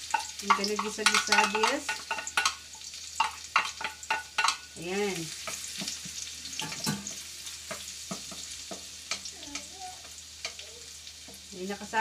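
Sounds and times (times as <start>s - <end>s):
onion and garlic sizzling in oil: 0.0s - 12.0s
spatula knocking against wok: 0.1s - 2.6s, 3.2s - 4.7s, 6.6s - 9.7s.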